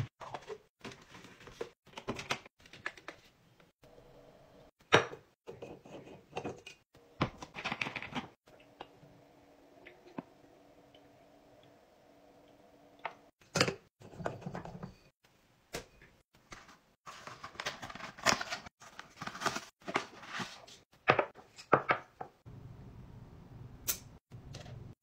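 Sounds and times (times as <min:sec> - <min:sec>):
paper box rustling open: 0:17.1 - 0:20.7.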